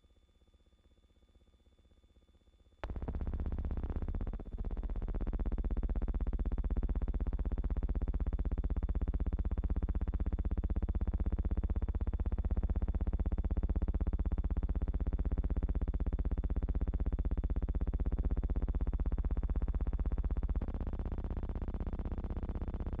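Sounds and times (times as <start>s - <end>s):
pulsing electronic drone: 2.8s - 6.7s.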